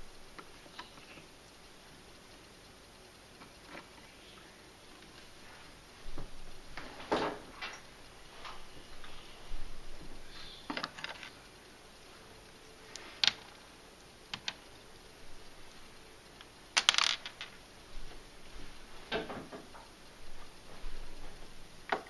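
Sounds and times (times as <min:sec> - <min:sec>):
small hard objects clicking: 0:10.7 - 0:11.5, 0:14.3 - 0:14.8, 0:16.4 - 0:17.6.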